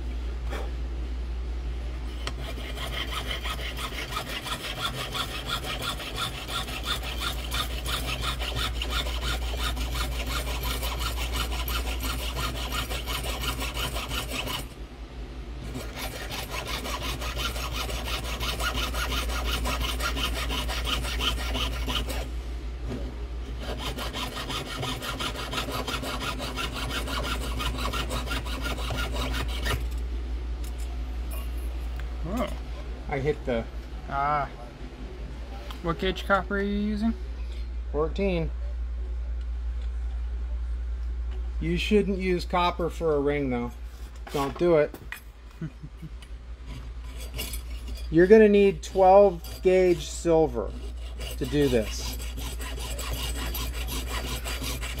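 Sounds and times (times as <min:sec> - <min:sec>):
fine saw cutting metal sheet: 0:02.2 - 0:14.7, 0:15.6 - 0:22.3, 0:23.6 - 0:29.8, 0:46.7 - 0:55.0.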